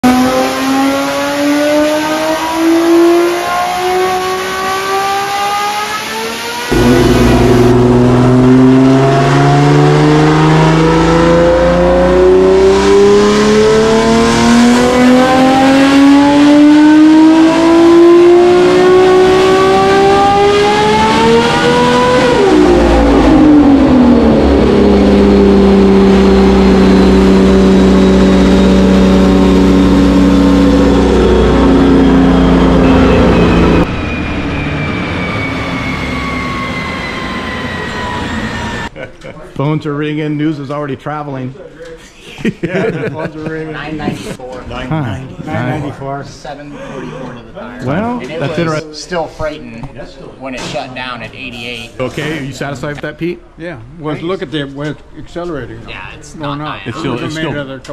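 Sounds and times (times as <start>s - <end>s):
engine revving at full throttle: 0.0s - 38.9s.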